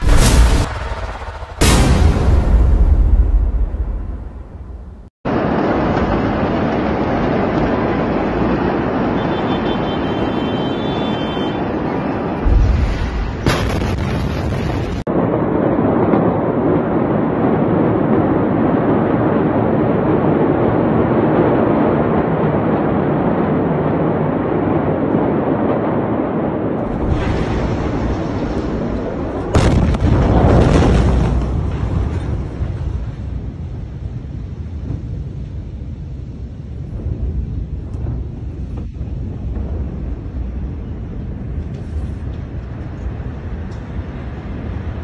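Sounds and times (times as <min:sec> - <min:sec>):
sharp crack: 0:00.0 - 0:04.7
heavy low explosion boom: 0:00.0 - 0:07.7, 0:12.0 - 0:45.0
loud continuous rumbling: 0:00.0 - 0:45.0.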